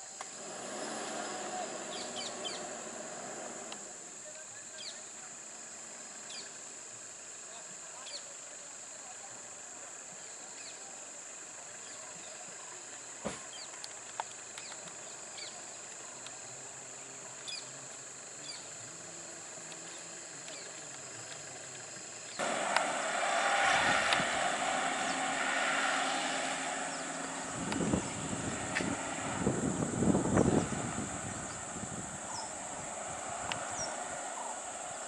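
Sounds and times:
high insect buzz: 0.1s - 8.2s, 17.5s - 35.0s
vehicle rushing noise close by: 0.2s - 4.3s, 22.4s - 35.0s
bird chirps: 1.8s - 2.8s, 32.3s - 32.6s.

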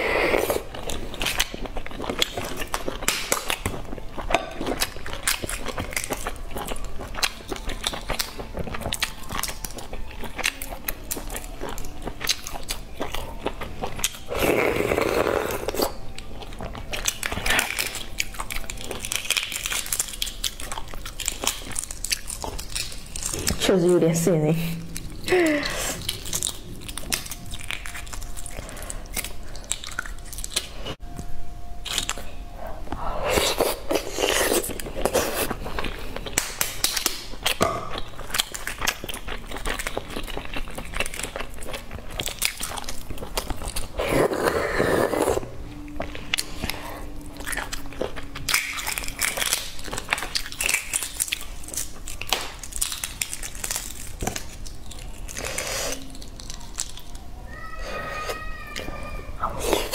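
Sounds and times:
chewing and biting: 0.3s - 23.8s, 24.8s - 31.0s, 33.3s - 57.3s
eggshell crackling: 4.9s - 31.0s, 46.0s - 58.5s.

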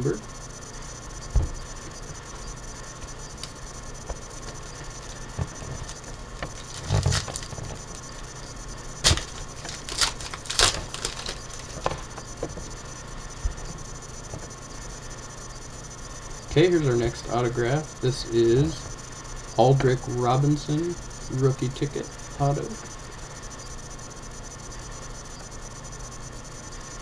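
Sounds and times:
foil wrapper crinkling: 4.9s - 8.2s, 9.0s - 12.2s
cards clicking: 9.0s - 12.1s.

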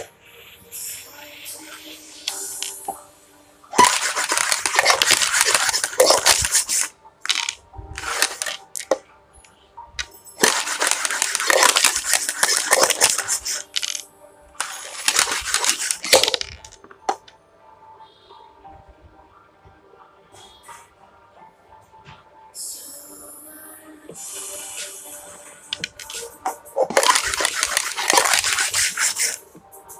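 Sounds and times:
dice rattling in plastic cup: 3.8s - 9.0s, 10.4s - 14.0s, 14.6s - 17.2s, 25.7s - 29.4s.

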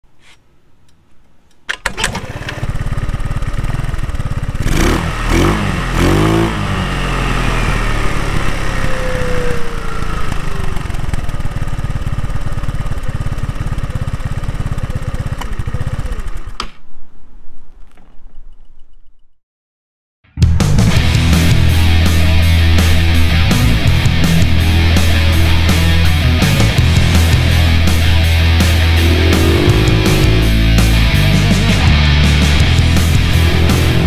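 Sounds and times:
scooter engine revving: 2.0s - 16.6s, 28.6s - 31.8s, 32.4s - 34.0s.

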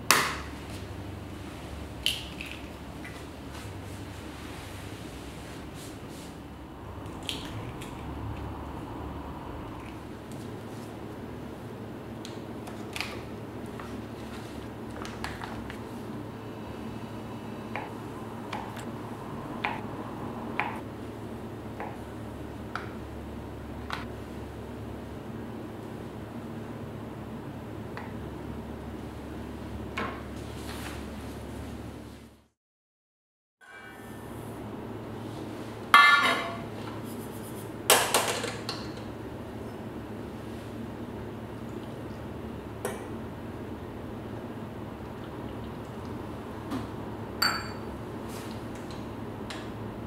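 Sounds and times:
steady low hum: 0.0s - 32.5s.

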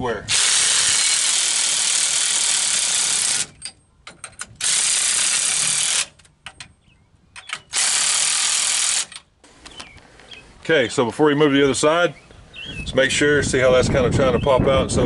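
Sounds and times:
power wrench spinning nuts: 0.3s - 3.8s, 4.4s - 6.2s, 7.4s - 9.2s.

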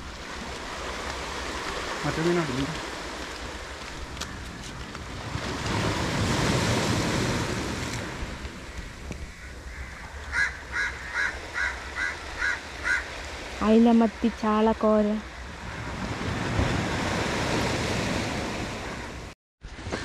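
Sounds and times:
surf washing up beach: 0.0s - 20.0s
bird calling: 8.8s - 13.1s.

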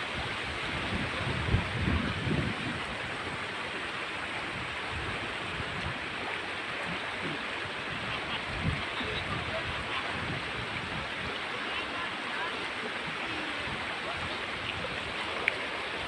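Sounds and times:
flowing river water: 0.0s - 16.0s.

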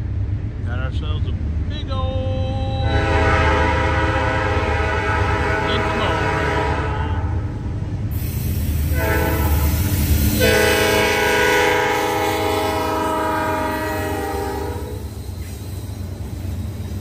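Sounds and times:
diesel engine rumble: 0.0s - 13.3s
train rolling by: 0.0s - 17.0s
locomotive air horn: 2.8s - 7.3s, 8.9s - 15.1s.

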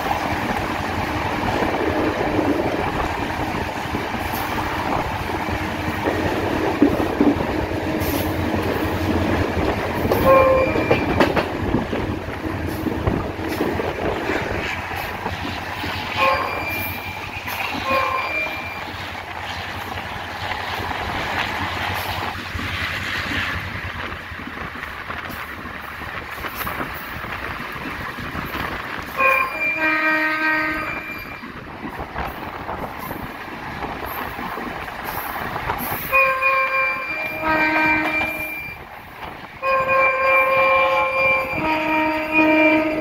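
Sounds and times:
diesel locomotive running: 0.0s - 43.0s
locomotive air horn blasts: 10.1s - 11.2s, 16.2s - 17.2s, 17.8s - 18.9s, 29.2s - 31.4s, 36.1s - 38.8s, 39.6s - 43.0s.

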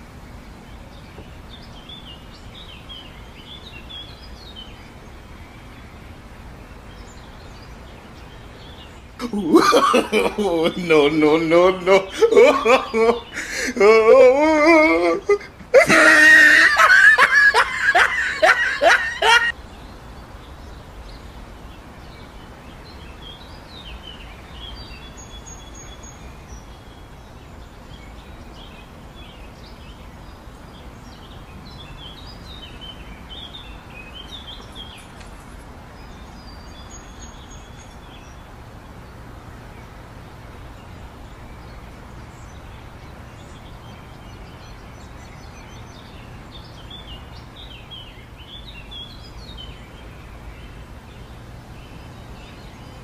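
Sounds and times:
hearty laughter: 9.2s - 19.5s.

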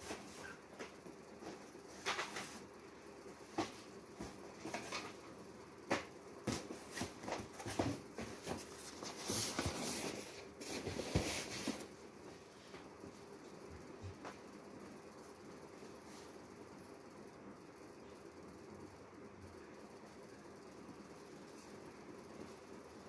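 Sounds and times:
cardboard scraping and rustling: 6.5s - 11.9s.

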